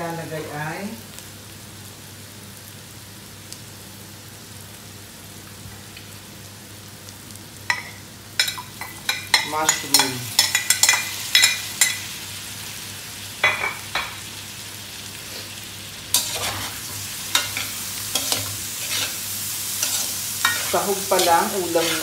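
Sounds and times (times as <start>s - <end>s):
food sizzling in a wok: 0.0s - 22.0s
metal spatula scraping a wok: 16.1s - 22.0s.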